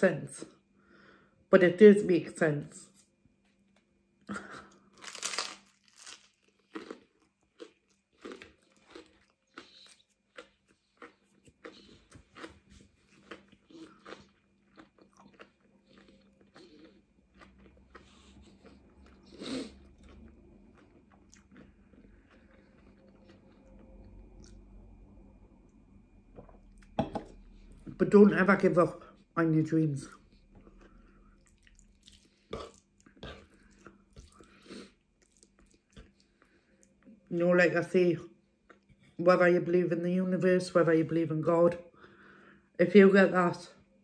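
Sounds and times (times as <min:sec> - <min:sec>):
crunchy bread being chewed: 0:04.7 - 0:24.8, 0:30.1 - 0:37.2.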